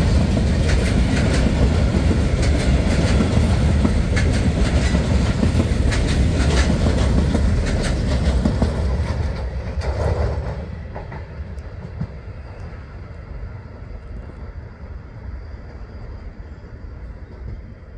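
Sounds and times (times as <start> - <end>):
wheels clicking over rail joints: 0.0 - 12.8
freight train rolling past: 0.0 - 17.9.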